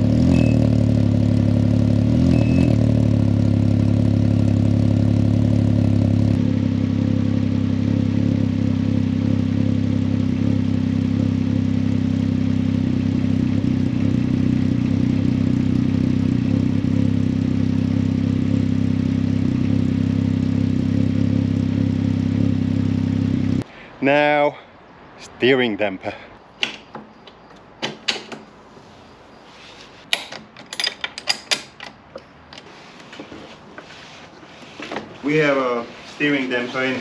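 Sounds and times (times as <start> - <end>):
motorcycle engine idling: 0.0 - 23.6.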